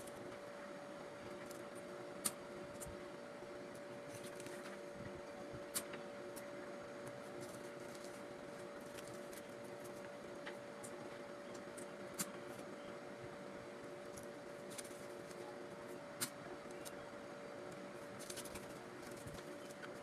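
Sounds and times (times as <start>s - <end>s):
rustling of banknotes and plastic: 3.8s - 4.8s, 7.1s - 10.1s, 18.0s - 20.0s.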